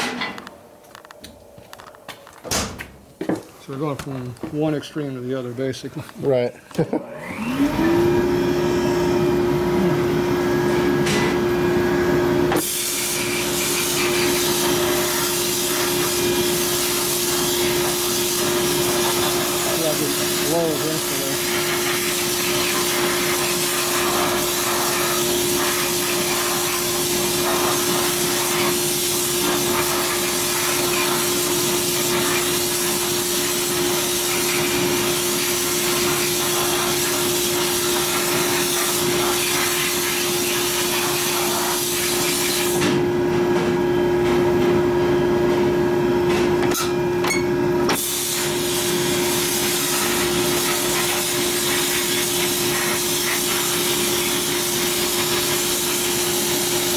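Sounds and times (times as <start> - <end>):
steady machine hum: 4.7 - 12.6
air nozzle blasting hiss: 12.6 - 42.8, 48.0 - 56.9.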